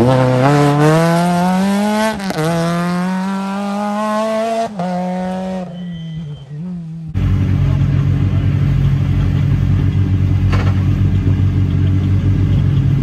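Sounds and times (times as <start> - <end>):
quick gear upshifts: 0.0 - 13.0
rally car engine accelerating: 0.0 - 13.0.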